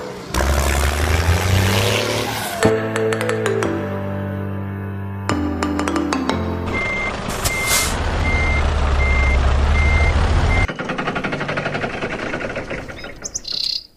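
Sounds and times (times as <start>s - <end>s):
diesel engine: 0.0s - 2.9s, 6.3s - 13.9s
truck reversing alarm beeping: 6.7s - 11.0s
fast rattling clatter: 10.7s - 13.6s.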